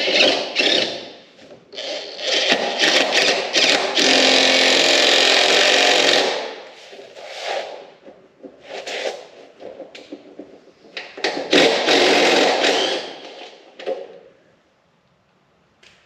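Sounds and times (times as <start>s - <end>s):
impact drill driving a bolt: 11.3s - 13.6s.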